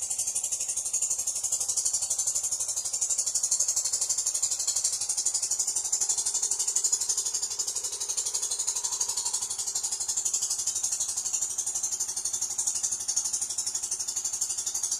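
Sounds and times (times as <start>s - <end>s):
high-pitched rattling buzz: 0.0s - 14.9s.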